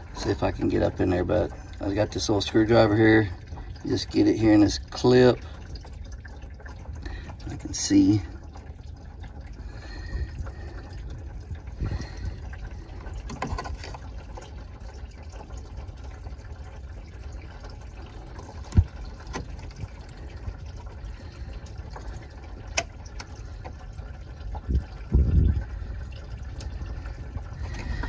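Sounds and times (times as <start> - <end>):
coolant trickling into pan: 0.0 - 28.0.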